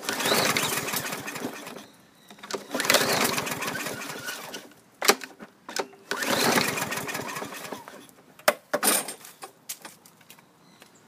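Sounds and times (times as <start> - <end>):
engine turning over: 0.0 - 1.8, 2.6 - 4.7, 6.1 - 8.0
recoil starter pulled: 0.0 - 1.8, 2.5 - 4.7, 6.1 - 8.0.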